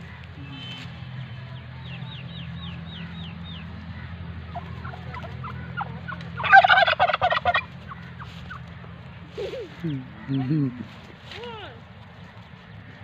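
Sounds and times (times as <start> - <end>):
turkey gobbling: 4.4 - 8.7.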